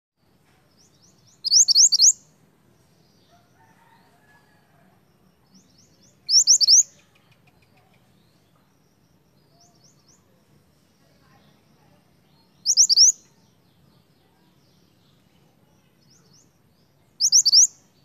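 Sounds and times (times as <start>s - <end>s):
faint bird chirps: 0.6s - 18.0s
bird whistling song phrases: 1.3s - 2.2s, 6.2s - 7.0s, 12.6s - 13.2s, 17.2s - 17.9s.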